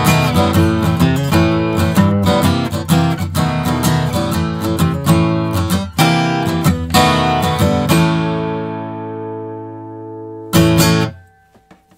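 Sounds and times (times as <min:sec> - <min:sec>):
acoustic guitar strumming chords: 0:00.0 - 0:11.9.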